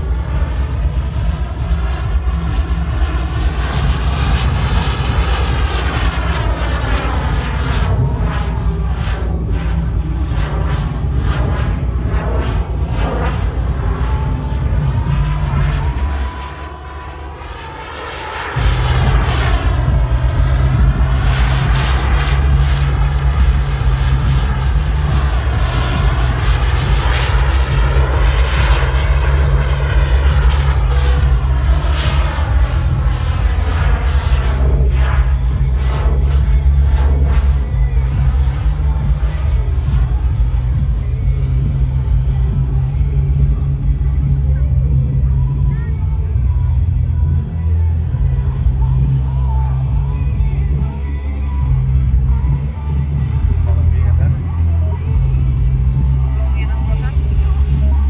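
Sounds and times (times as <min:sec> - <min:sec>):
model jet turbine whine: 0:00.0 - 0:58.0.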